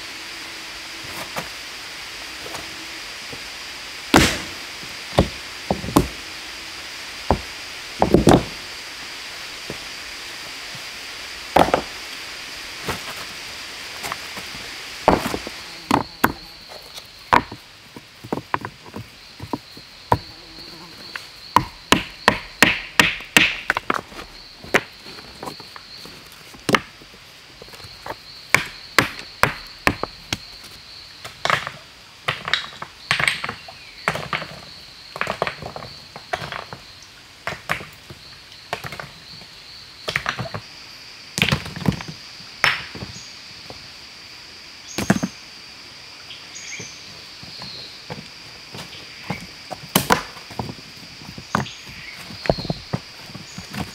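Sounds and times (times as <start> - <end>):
sharp strikes on wood: 4.1 - 4.6, 21.6 - 23.8
high-pitched insect buzz: 8.2 - 17.6, 19.2 - 22.5.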